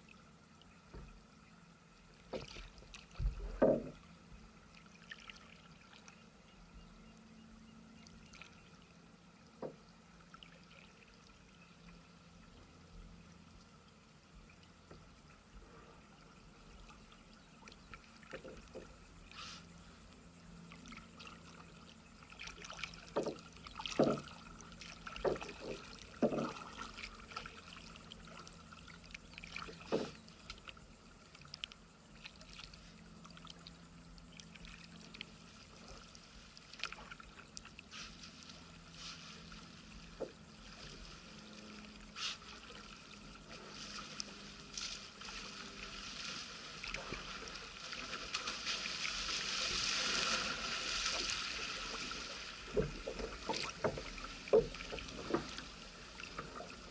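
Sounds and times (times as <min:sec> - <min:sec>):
water splashing from paddling: 0:02.2 - 0:04.1, 0:04.7 - 0:06.2, 0:16.7 - 0:56.9.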